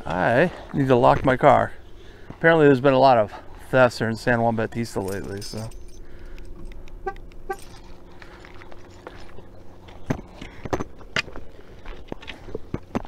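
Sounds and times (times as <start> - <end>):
steady low hum: 0.0 - 13.0
keys clicking and knocking: 4.8 - 9.1.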